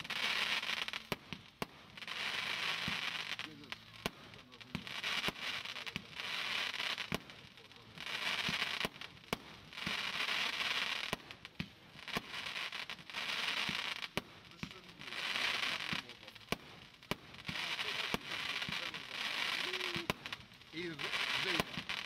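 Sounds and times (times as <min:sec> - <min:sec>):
fireworks bangs: 0:00.0 - 0:22.0
fireworks hissing as they burn: 0:00.0 - 0:22.0.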